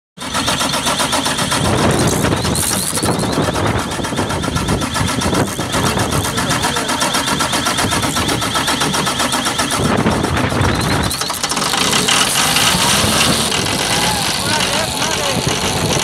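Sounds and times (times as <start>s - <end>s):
diesel engine idling: 0.2s - 16.0s
valvetrain ticking rapidly: 0.2s - 16.0s.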